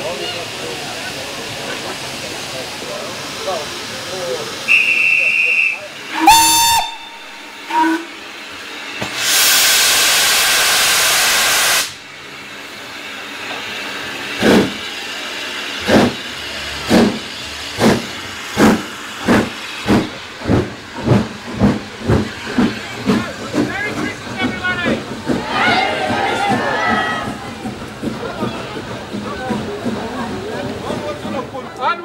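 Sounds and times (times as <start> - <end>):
steam hissing: 0.0 - 32.0
locomotive exhaust chuffs: 0.9 - 31.7
guard's whistle: 4.7 - 7.2
steam whistle blasts: 4.7 - 8.2.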